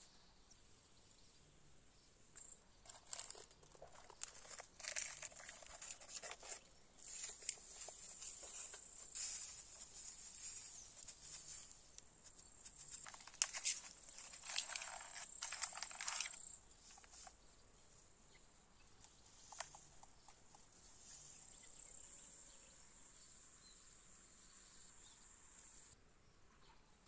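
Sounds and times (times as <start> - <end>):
insects chirring: 2.3 - 17.3
crackling rustling clicks: 2.4 - 17.4, 19.0 - 20.7.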